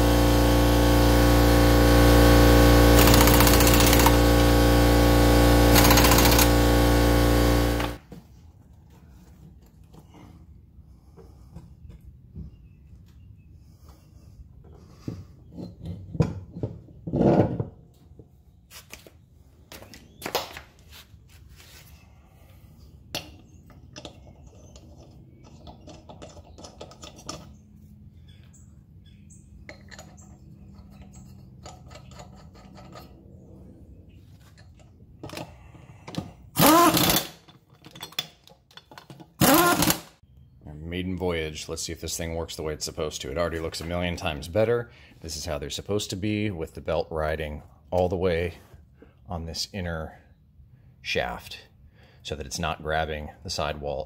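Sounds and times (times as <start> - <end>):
air impact wrench spinning: 0.0 - 8.0, 36.6 - 37.4, 39.4 - 40.1.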